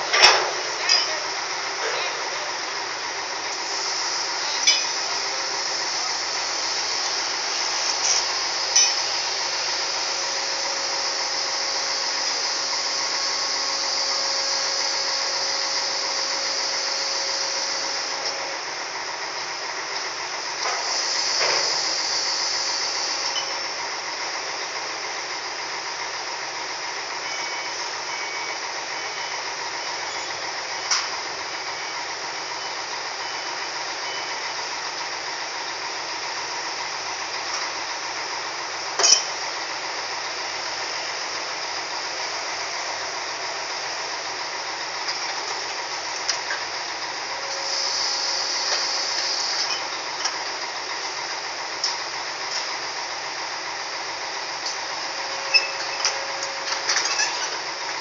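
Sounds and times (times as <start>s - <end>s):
cargo handling machinery: 0.0s - 58.0s
sharp metal clanks: 0.1s - 1.2s, 4.6s - 5.0s, 8.0s - 9.1s.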